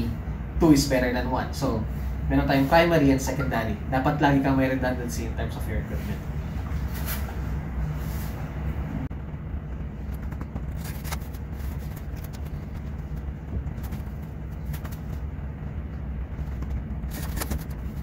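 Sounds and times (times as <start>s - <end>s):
equipment fans humming: 0.0s - 18.0s.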